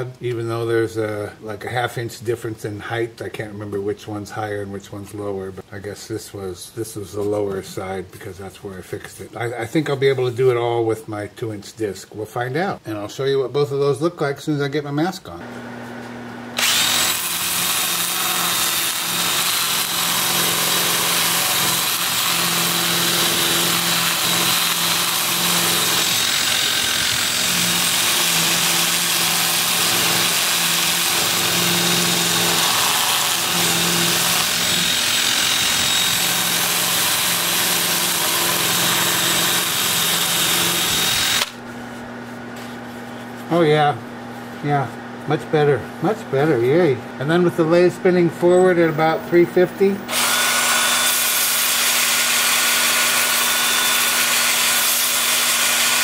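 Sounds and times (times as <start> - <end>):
cordless drill motor whining: 16.6 - 41.6, 50.1 - 56.0.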